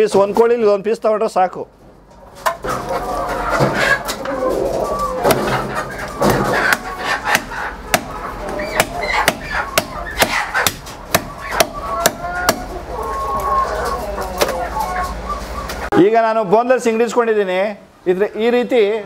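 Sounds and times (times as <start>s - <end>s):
chickens clucking: 0.0s - 19.0s
cleaver chopping on wooden block: 6.7s - 8.1s, 8.8s - 12.7s.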